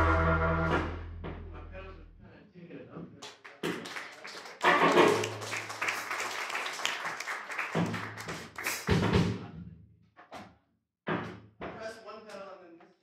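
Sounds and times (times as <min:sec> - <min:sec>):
low bass note: 0:00.0 - 0:02.4
live band playing: 0:04.6 - 0:05.7.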